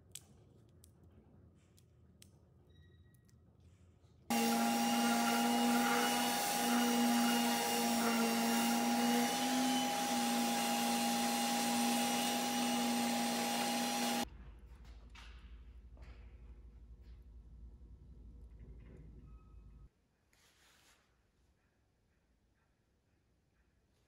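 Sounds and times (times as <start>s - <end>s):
dust extractor rushing air: 4.3s - 14.2s.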